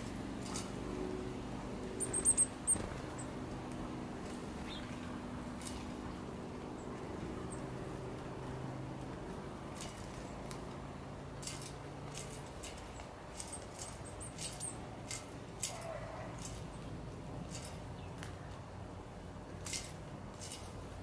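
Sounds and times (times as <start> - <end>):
birds pecking at metal feeder: 2.0 - 18.5, 19.5 - 20.9.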